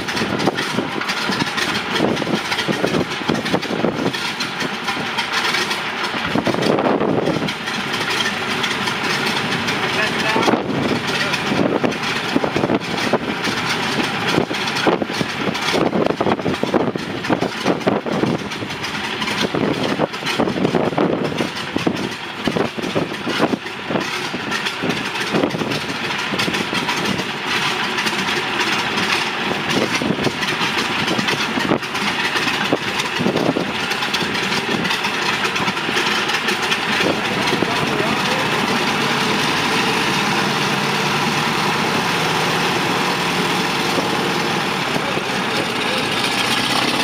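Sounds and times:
wind buffeting the microphone: 0:00.0 - 0:05.3, 0:06.1 - 0:08.3, 0:10.2 - 0:28.1, 0:29.0 - 0:39.7
propeller plane engines running: 0:00.0 - 0:47.0.

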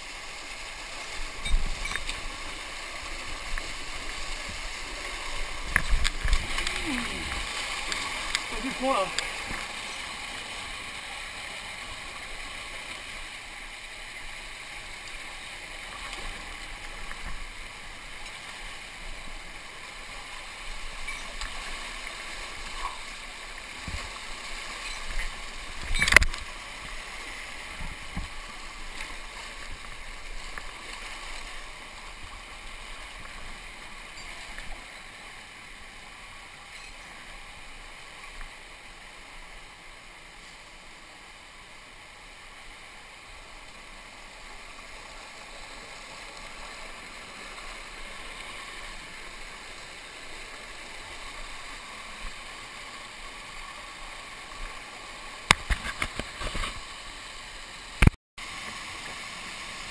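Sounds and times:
stream water rushing and gurgling: 0:00.0 - 0:59.9.

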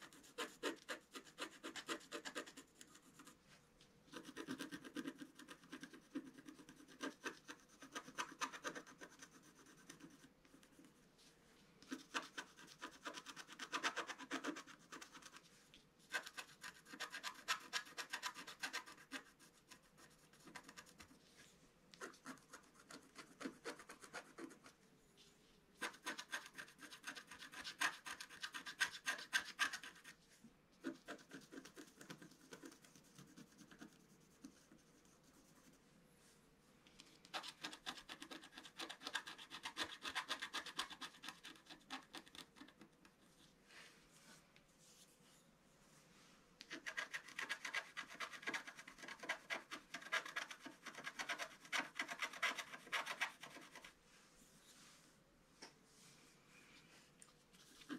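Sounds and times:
stylus scratching paper: 0:00.0 - 0:03.4, 0:04.1 - 0:11.0, 0:11.8 - 0:21.2, 0:22.0 - 0:24.8, 0:25.8 - 0:30.2, 0:30.8 - 0:35.8, 0:37.2 - 0:43.4, 0:46.7 - 0:54.0.

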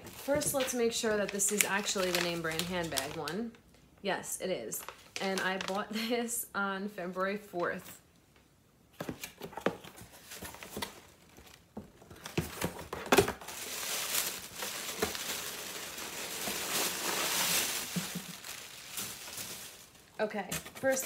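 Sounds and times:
packing wrap crinkling: 0:00.0 - 0:03.6, 0:04.8 - 0:06.0, 0:10.2 - 0:21.0.

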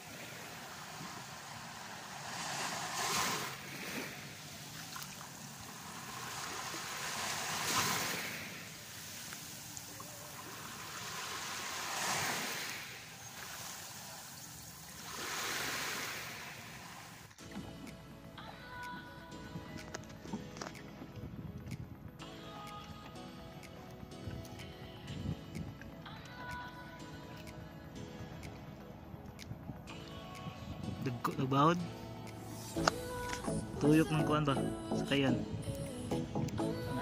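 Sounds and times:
small waves breaking on beach: 0:00.0 - 0:17.8.

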